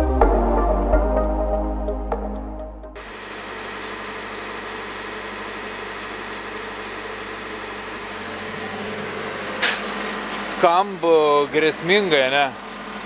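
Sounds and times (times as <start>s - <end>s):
heavy truck idling: 3.0s - 13.0s.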